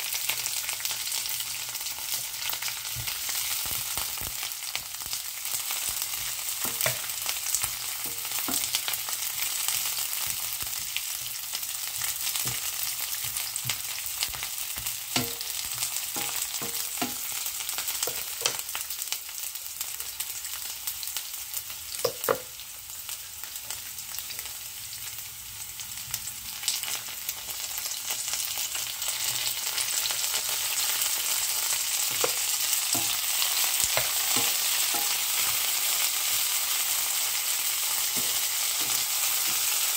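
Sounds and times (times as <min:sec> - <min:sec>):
vegetables sizzling in oil: 0:00.0 - 0:39.9
wooden spatula knocking pan: 0:06.2 - 0:07.2, 0:12.0 - 0:17.3, 0:18.0 - 0:18.6, 0:22.0 - 0:22.5, 0:32.0 - 0:35.6.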